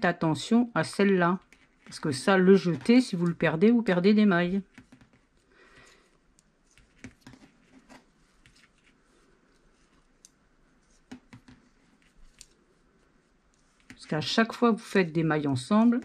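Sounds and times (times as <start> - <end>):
knitting needles clicking: 10.2 - 10.4, 12.2 - 12.6.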